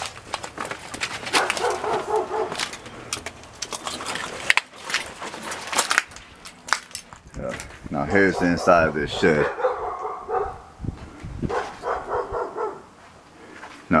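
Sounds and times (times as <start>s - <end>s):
footsteps crunching debris: 0.0s - 8.3s
dog barking: 1.3s - 2.6s, 8.2s - 10.7s, 11.5s - 12.9s.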